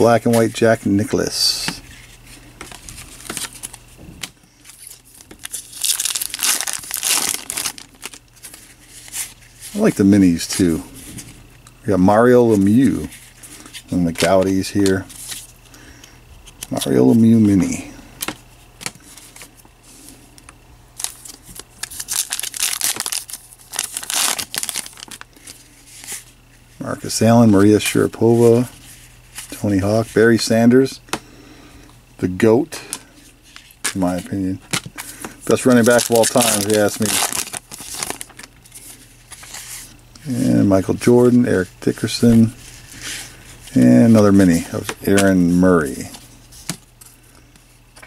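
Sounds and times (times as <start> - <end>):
wrapper crinkling and tearing: 4.6 - 9.8, 21.0 - 26.2, 35.5 - 39.8.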